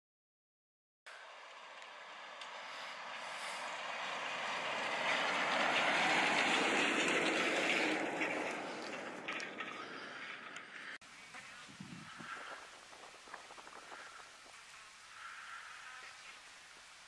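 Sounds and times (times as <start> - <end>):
truck passing on dirt road: 1.1 - 11.0.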